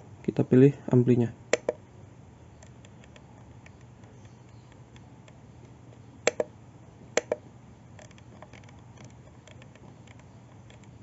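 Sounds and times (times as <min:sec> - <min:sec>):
low steady hum: 0:00.0 - 0:11.0
knob button clicks: 0:01.6 - 0:01.8, 0:06.3 - 0:06.5, 0:07.2 - 0:07.4
knob turning ticks: 0:01.6 - 0:01.8, 0:06.3 - 0:06.5, 0:07.2 - 0:07.4.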